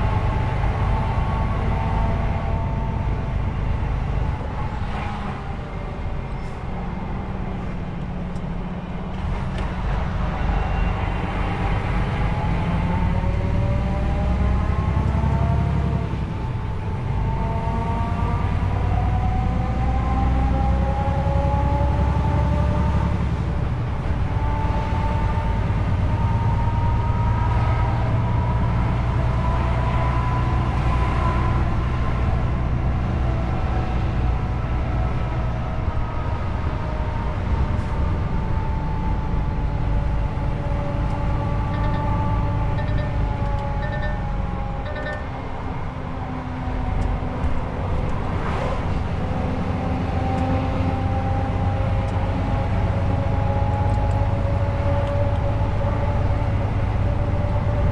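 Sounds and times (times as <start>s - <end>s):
truck engine running: 37.6s - 48.3s.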